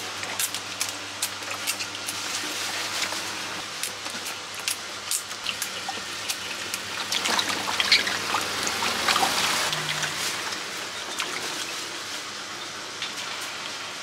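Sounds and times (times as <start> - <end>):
water splashing in a metal basin: 5.4 - 11.7.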